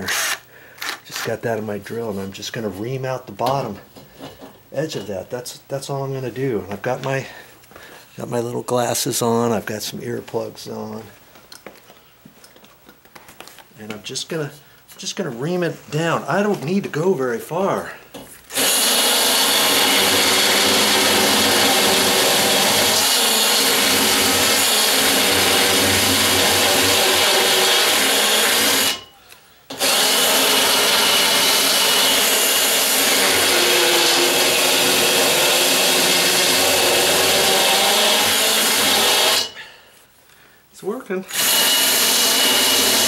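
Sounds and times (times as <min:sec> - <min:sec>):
cordless drill grinding: 0:00.0 - 0:01.3, 0:18.5 - 0:29.1, 0:29.7 - 0:39.6, 0:41.3 - 0:43.0.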